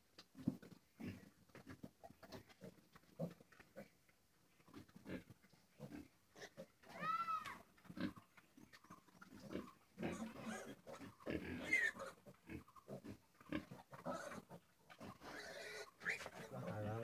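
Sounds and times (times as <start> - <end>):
pigs grunting: 8.8 - 17.0
pig squealing: 9.5 - 17.0.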